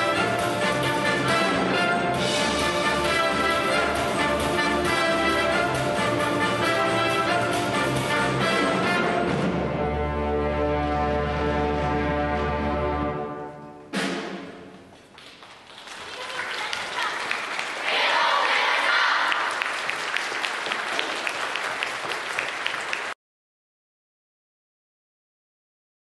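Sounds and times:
wind band chord: 0:00.0 - 0:13.8
audience applause: 0:15.2 - 0:23.2.

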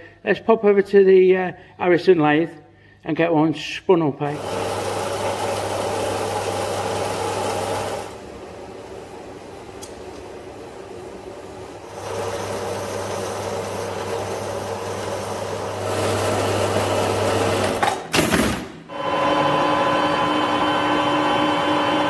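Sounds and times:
lathe whine: 0:04.4 - 0:09.5, 0:10.4 - 0:17.8, 0:18.9 - 0:22.0.

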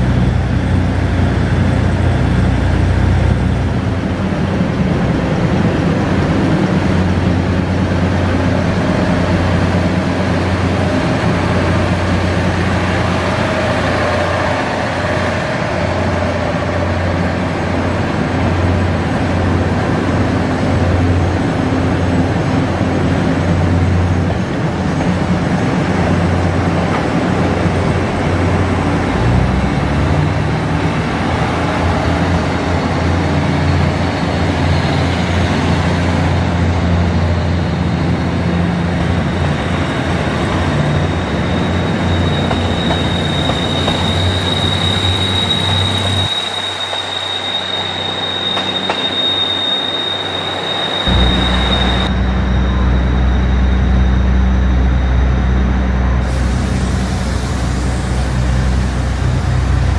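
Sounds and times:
diesel engines humming: 0:00.0 - 0:59.9
high wheel squeal: 0:09.2 - 0:17.4, 0:38.4 - 0:59.9
low rumble: 0:51.1 - 0:56.3.

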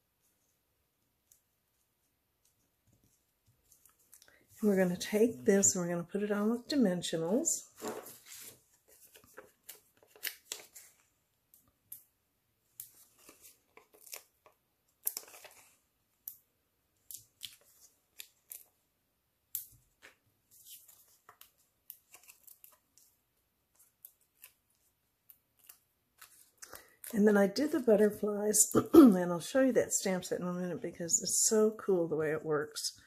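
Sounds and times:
paper handling clicks: 0:09.0 - 0:12.0.

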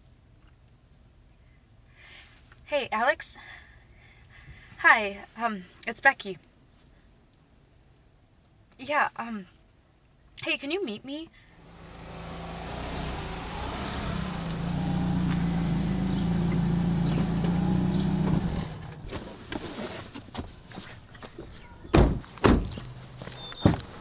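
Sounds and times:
car engine running: 0:11.6 - 0:19.2
car door thunks shut: 0:21.9 - 0:22.8.

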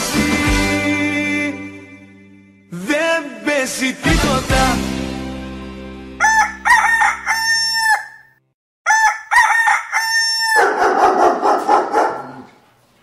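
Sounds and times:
rooster crowing: 0:06.2 - 0:12.0.

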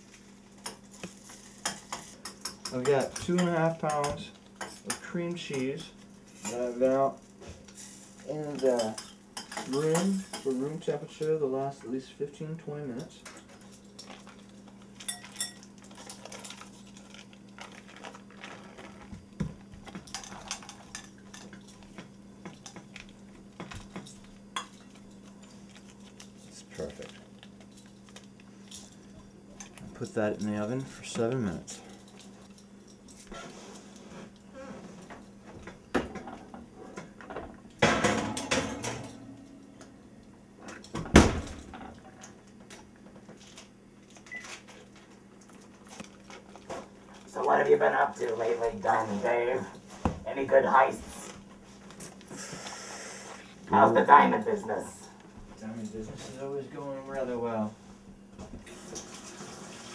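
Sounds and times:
foil wrappers crinkling: 0:13.6 - 0:21.9, 0:25.0 - 0:34.0, 0:43.4 - 0:47.5.

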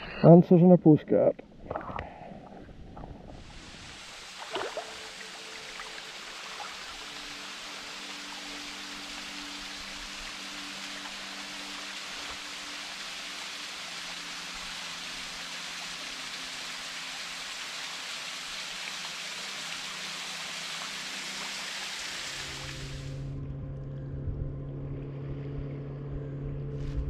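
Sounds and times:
waterfall splashing: 0:03.4 - 0:23.2
steady low hum: 0:22.4 - 0:27.0.

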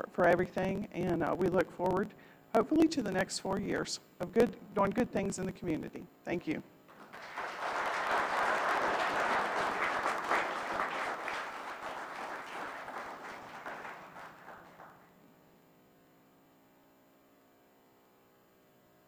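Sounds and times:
audience applauding: 0:06.9 - 0:15.2.

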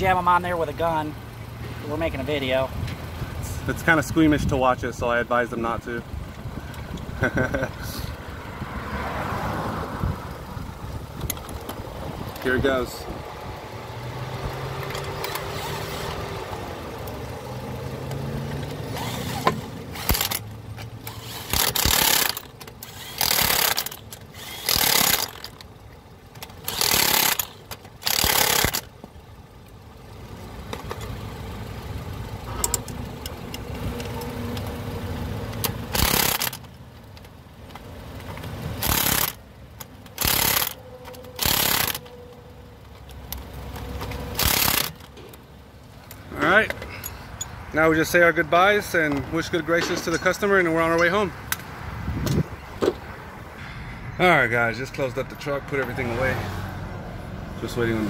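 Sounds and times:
low engine hum: 0:00.1 - 0:58.0
impact wrench bursts: 0:14.8 - 0:16.2, 0:18.8 - 0:25.7, 0:26.4 - 0:28.9, 0:35.8 - 0:36.7, 0:38.8 - 0:42.1, 0:44.0 - 0:45.2.

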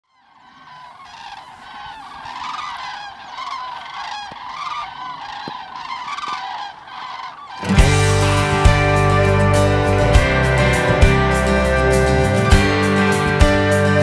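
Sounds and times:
geese honking in flight: 0:00.0 - 0:10.7.

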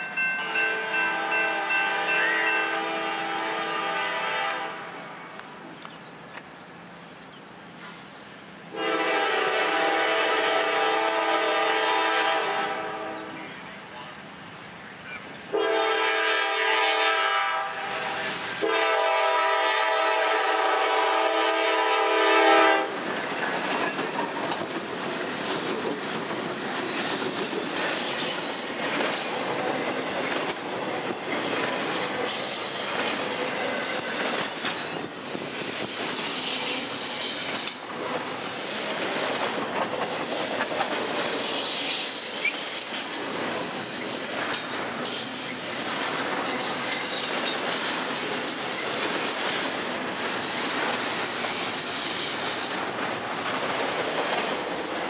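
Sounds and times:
freight train rumbling: 0:00.0 - 0:55.0
locomotive air horn blasts: 0:00.4 - 0:05.0, 0:08.7 - 0:13.4, 0:15.5 - 0:22.9
wheels clacking over rail joints: 0:22.8 - 0:55.0.

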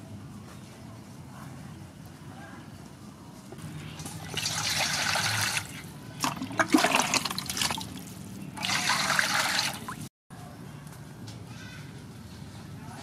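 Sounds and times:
water pouring into steel basin: 0:04.1 - 0:07.9, 0:08.6 - 0:10.0.

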